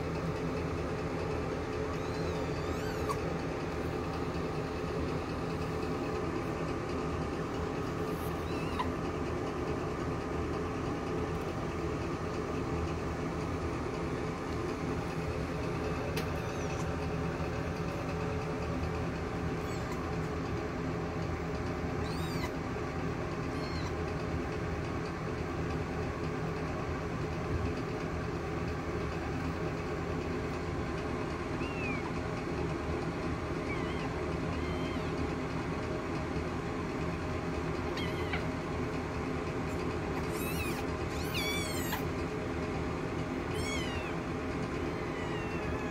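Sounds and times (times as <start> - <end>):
kitten squeaks: 1.6 - 6.1, 7.4 - 9.1, 15.7 - 18.3, 19.4 - 20.4, 21.9 - 22.6, 23.4 - 24.1, 31.4 - 32.2, 33.5 - 35.5, 37.8 - 38.6, 39.7 - 42.1, 43.4 - 45.9.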